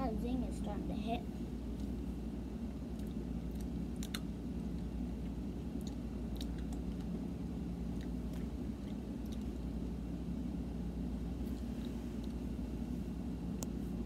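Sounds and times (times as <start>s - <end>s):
low background rumble: 0.0s - 14.0s
child chewing candy: 2.8s - 7.2s, 7.8s - 9.8s.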